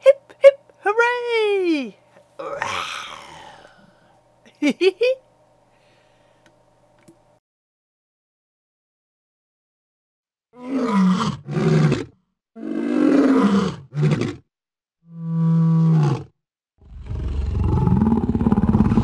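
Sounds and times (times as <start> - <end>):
tiger cub roaring and growling: 2.4 - 3.8, 10.6 - 14.4, 15.1 - 19.0.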